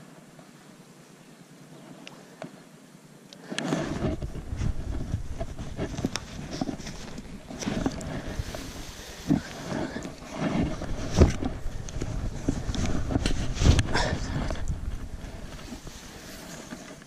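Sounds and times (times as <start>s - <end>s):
tall grass rustling: 1.5s - 17.0s
bumps and low rumble: 3.8s - 17.0s.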